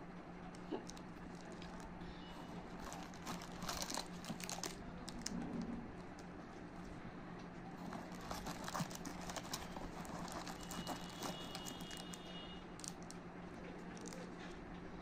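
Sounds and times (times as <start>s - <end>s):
faint steady hum: 0.0s - 15.0s
foil wrapper crinkling: 0.6s - 5.4s, 7.8s - 13.2s, 13.9s - 14.3s.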